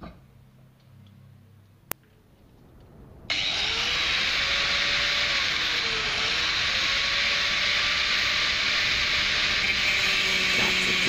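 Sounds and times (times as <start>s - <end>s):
angle grinder motor whine: 3.2s - 11.0s.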